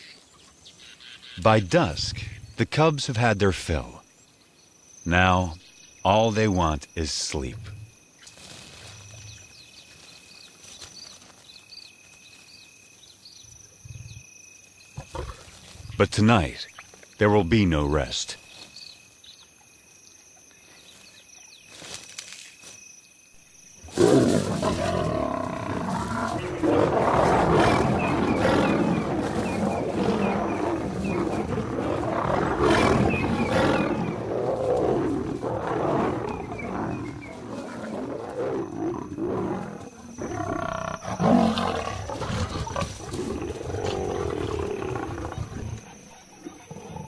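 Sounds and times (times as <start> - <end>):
faint insect chirring: 0.0 - 47.0
lions snarling and growling: 15.0 - 16.0, 23.9 - 47.0.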